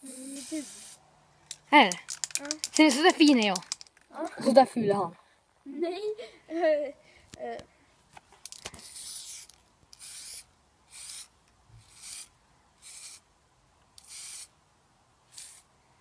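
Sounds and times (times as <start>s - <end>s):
spray paint can hissing: 0.0s - 1.0s, 8.8s - 13.2s, 14.0s - 14.5s, 15.3s - 15.7s.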